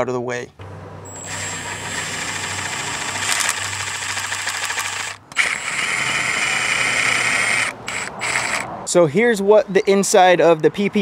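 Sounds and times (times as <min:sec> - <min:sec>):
cordless impact wrench zipping: 0:01.1 - 0:08.7.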